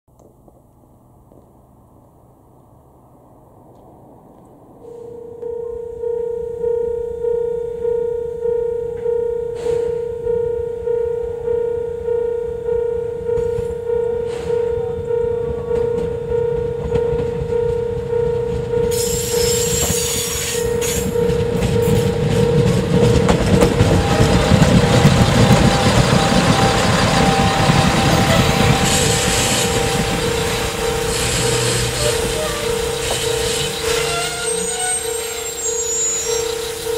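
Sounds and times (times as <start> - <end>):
diesel railcar passing: 0.2 - 36.9.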